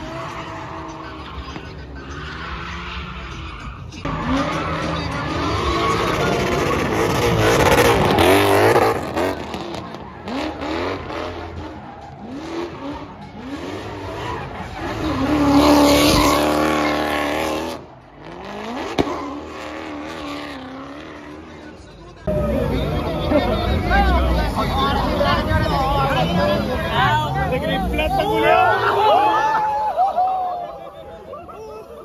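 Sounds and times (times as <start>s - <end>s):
tyres squealing: 0.0s - 17.1s
car engines revving: 0.0s - 32.0s.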